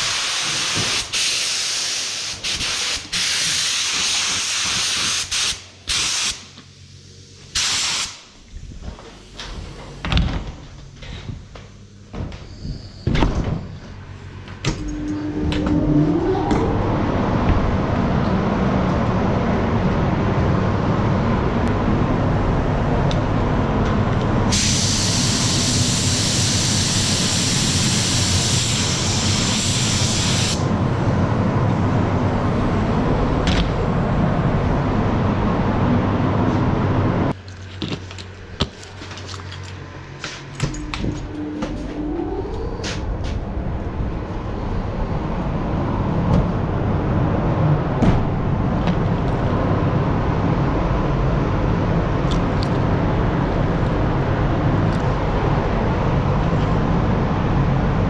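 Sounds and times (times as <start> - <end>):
compressed air hissing: 0.0 - 8.4, 24.5 - 30.7
loud steady rumble: 8.3 - 58.0
short rising tone: 14.8 - 19.3.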